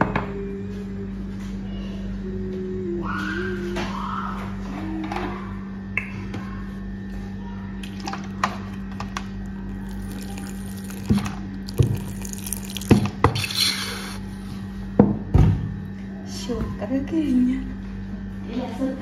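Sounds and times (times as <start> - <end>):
liquid splashing into a pot: 9.7 - 13.4.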